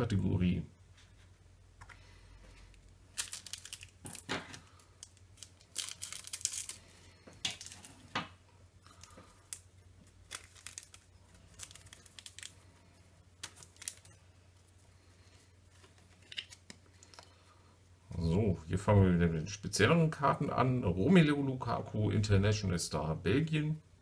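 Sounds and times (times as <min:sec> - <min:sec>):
cards rustling: 0:01.8 - 0:08.1, 0:08.9 - 0:17.4.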